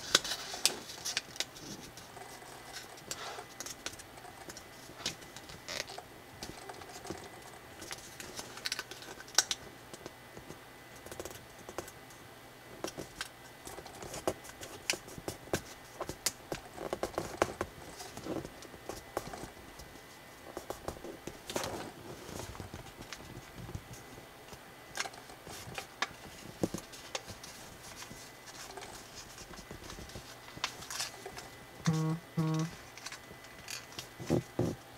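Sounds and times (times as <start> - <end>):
paper crinkling and rustling: 0.0 - 9.6, 25.0 - 31.6.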